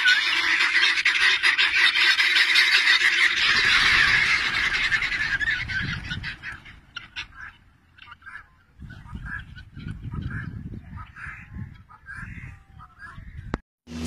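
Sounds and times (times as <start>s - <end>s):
flock of birds calling: 0.0s - 13.6s.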